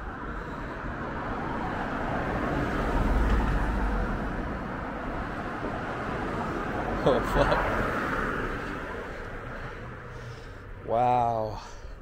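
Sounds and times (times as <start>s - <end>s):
board tyre rolling on concrete: 0.9s - 10.2s.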